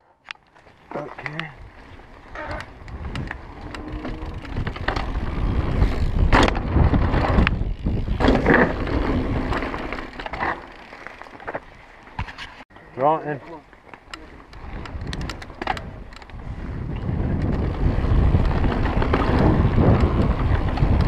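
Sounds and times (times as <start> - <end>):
bike tyres rumbling on dirt: 0.5 - 12.6, 13.6 - 21.0
bike rattling and knocking: 0.6 - 12.4, 13.8 - 21.0
wind buffeting microphone: 1.4 - 9.6, 14.5 - 21.0.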